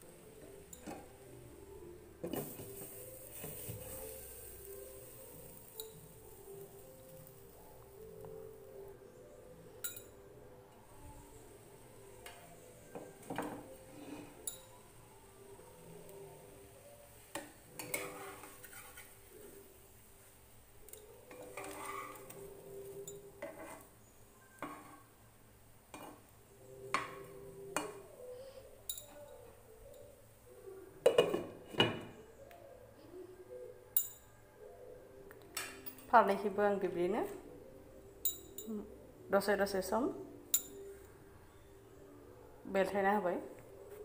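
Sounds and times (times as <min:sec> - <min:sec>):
metal spatula scraping frying pan: 0:17.7 - 0:19.5, 0:21.3 - 0:22.5, 0:23.4 - 0:23.9, 0:24.6 - 0:25.1.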